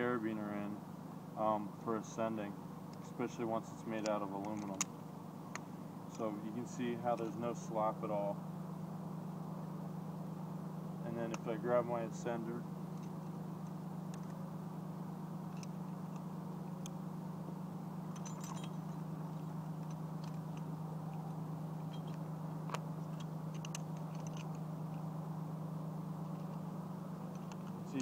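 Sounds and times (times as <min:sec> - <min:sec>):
steady low hum: 0:00.0 - 0:28.0
metallic clicks of climbing gear: 0:04.0 - 0:04.9, 0:18.1 - 0:19.0, 0:19.8 - 0:25.0, 0:27.2 - 0:28.0.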